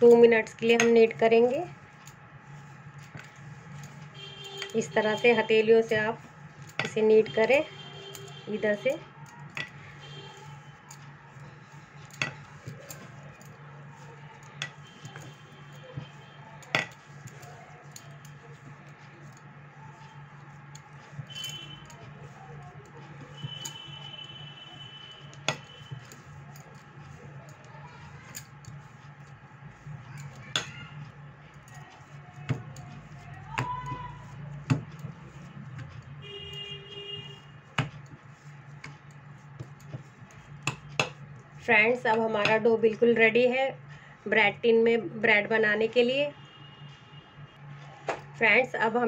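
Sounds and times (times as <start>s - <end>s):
bangles and glass dish clinking: 0.0s - 5.2s, 5.8s - 7.0s, 7.7s - 8.5s, 9.2s - 30.9s
steady low hum: 0.0s - 49.0s.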